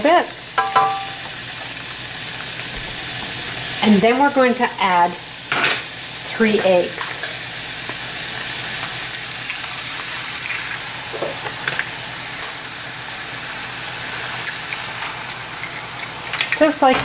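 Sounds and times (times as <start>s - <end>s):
vegetables sizzling in a frying pan: 0.0s - 17.0s
eggs cracking with clicks and taps: 10.3s - 12.6s, 14.1s - 16.7s.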